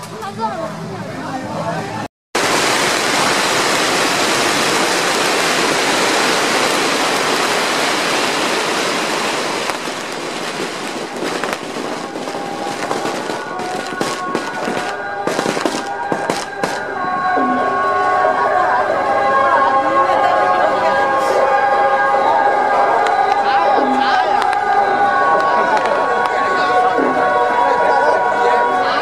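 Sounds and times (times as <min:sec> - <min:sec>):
firecrackers crackling and banging: 0:02.4 - 0:17.0, 0:23.0 - 0:26.5.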